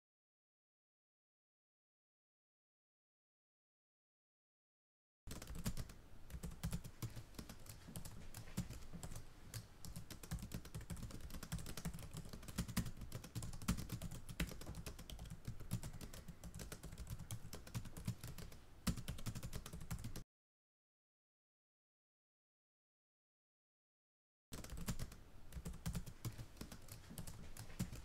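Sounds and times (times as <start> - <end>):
typing on a keyboard: 5.3 - 20.2, 24.6 - 28.0.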